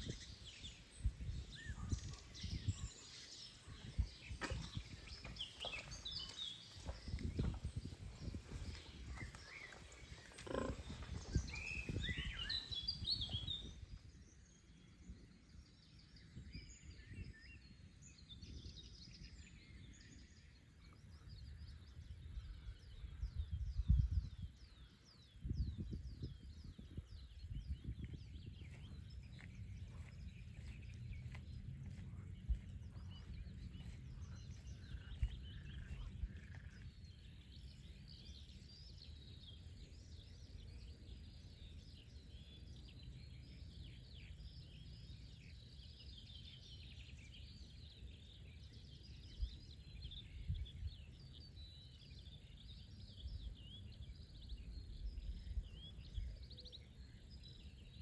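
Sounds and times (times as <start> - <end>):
songbirds chirping and trilling: 0.0 - 58.0
low background rumble: 27.0 - 38.1.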